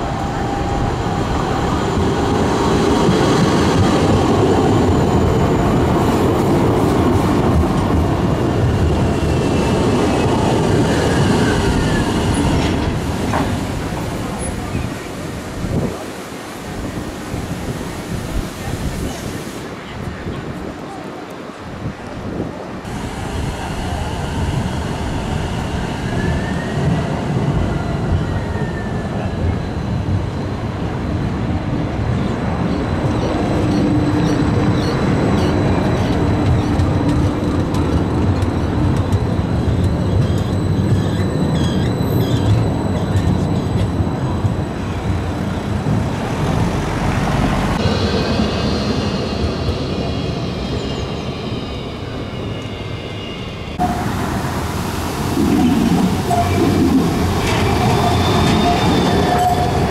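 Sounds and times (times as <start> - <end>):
tram wheels rumbling on rails: 0.0 - 59.9
tram wheels squealing: 23.6 - 30.0, 32.7 - 54.0, 55.6 - 59.9.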